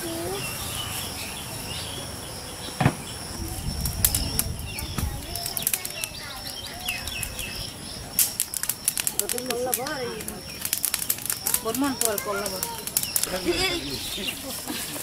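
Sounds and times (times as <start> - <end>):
small birds chirping: 0.0 - 15.0
thump: 2.8 - 3.1
wood fire crackling and popping: 2.9 - 15.0.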